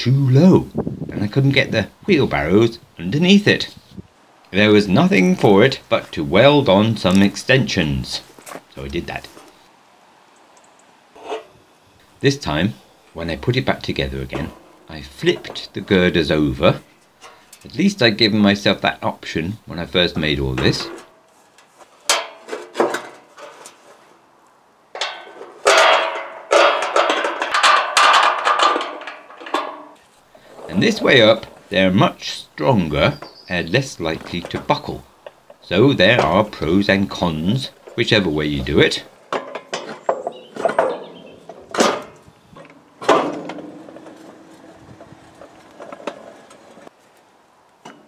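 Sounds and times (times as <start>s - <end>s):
steel parts scraping: 11.2s - 18.2s, 20.6s - 24.2s, 25.0s - 47.0s
metal clanking: 11.2s - 19.0s, 20.2s - 24.0s, 24.9s - 47.0s.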